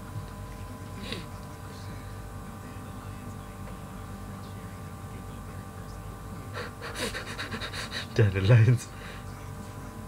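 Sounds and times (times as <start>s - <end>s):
low steady hum: 0.0s - 10.0s
faint speech: 0.9s - 7.6s.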